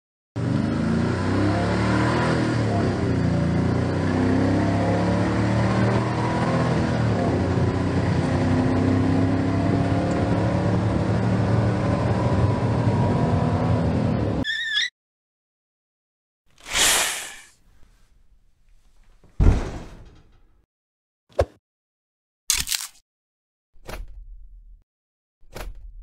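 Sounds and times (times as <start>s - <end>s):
high wavering squeak: 14.4s - 15.0s.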